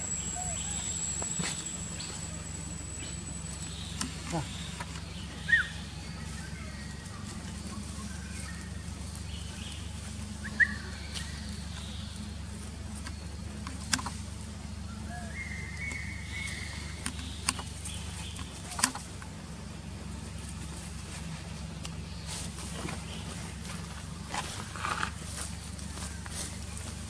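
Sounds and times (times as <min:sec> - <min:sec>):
faint high held tone: 0:00.0 - 0:03.7
rising chirp: 0:00.0 - 0:07.0
steady low hum: 0:00.0 - 0:27.0.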